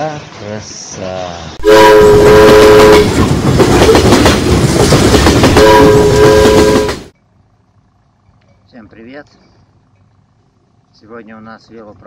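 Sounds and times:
train running on rails: 0:00.0 - 0:12.0
multi-tone train horn: 0:01.6 - 0:03.2, 0:05.6 - 0:07.1.

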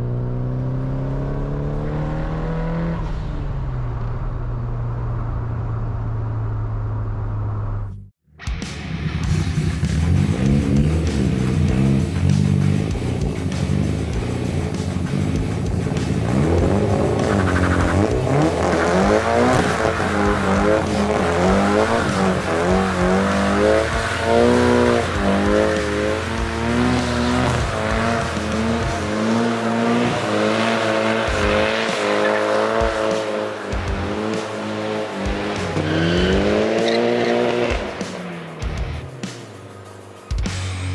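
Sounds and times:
car engine revving: 0:00.0 - 0:08.1, 0:08.8 - 0:40.9.

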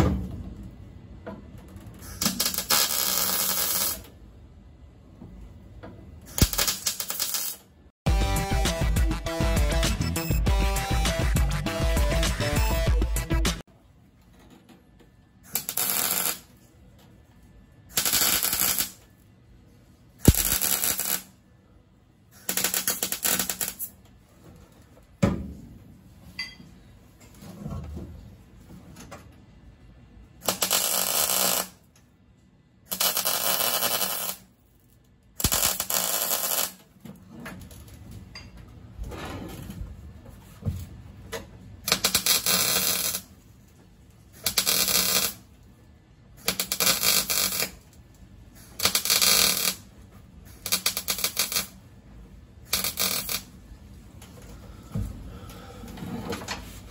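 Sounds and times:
welder crackling: 0:02.1 - 0:04.0, 0:06.3 - 0:07.6, 0:15.5 - 0:16.5, 0:17.9 - 0:19.0, 0:20.2 - 0:21.3, 0:22.4 - 0:23.9, 0:30.4 - 0:31.8, 0:32.9 - 0:34.4, 0:35.4 - 0:36.8, 0:41.9 - 0:43.3, 0:44.4 - 0:45.5, 0:46.4 - 0:47.8, 0:48.6 - 0:49.8, 0:50.5 - 0:51.8, 0:52.7 - 0:53.5.

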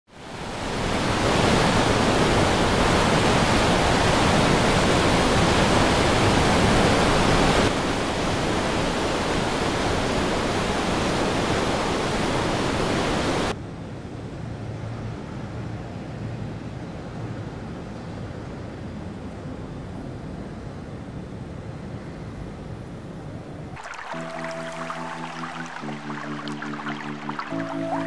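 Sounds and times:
river rapids rushing: 0:23.8 - 0:28.0.

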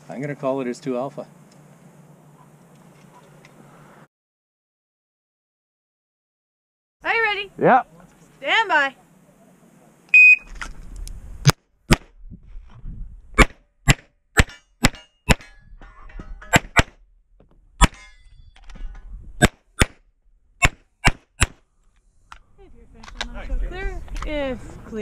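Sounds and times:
pistol shots: 0:20.6 - 0:21.6.

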